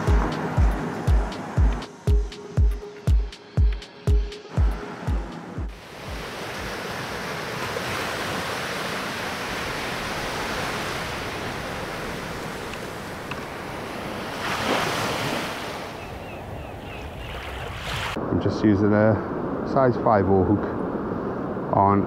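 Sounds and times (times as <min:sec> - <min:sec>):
sea surf breaking on beach: 0:04.5 - 0:16.2, 0:17.2 - 0:18.3.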